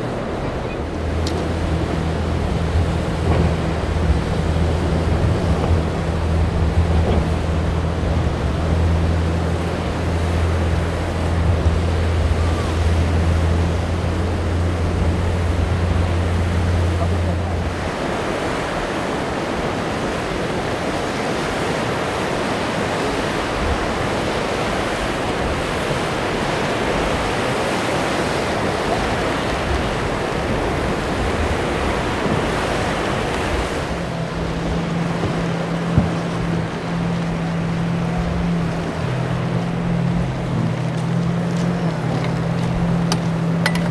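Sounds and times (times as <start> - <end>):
outboard motor droning: 0.0 - 43.9
rough surf rushing: 0.0 - 43.9
wind: 0.0 - 43.9.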